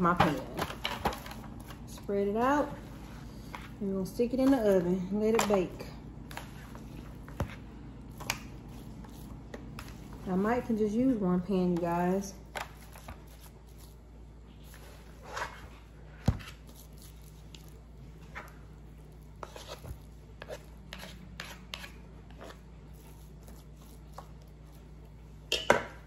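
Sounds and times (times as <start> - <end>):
utensil scraping and tapping in pan: 19.4 - 24.5.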